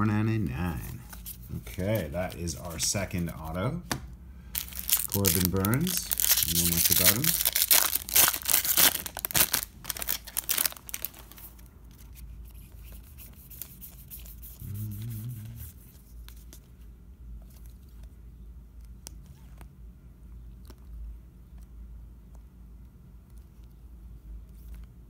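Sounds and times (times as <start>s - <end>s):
low hum: 0.0s - 19.2s
foil wrapper crinkling and tearing: 4.6s - 12.1s.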